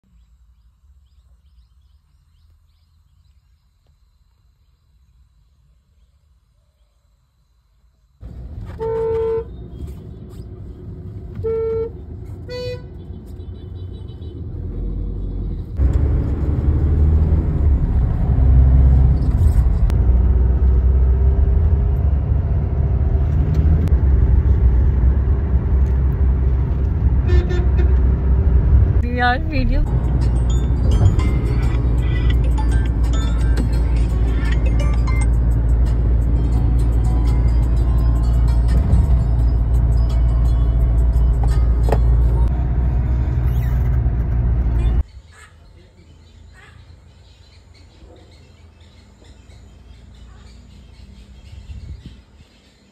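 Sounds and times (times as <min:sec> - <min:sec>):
traffic rumble: 0:08.2 - 0:52.9
car horn honking: 0:08.7 - 0:09.6, 0:11.4 - 0:14.4, 0:27.2 - 0:28.1.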